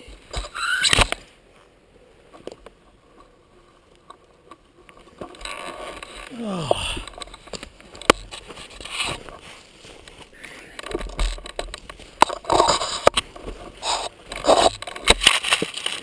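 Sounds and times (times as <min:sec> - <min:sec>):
gear rubbing against camera: 0:07.0 - 0:16.0.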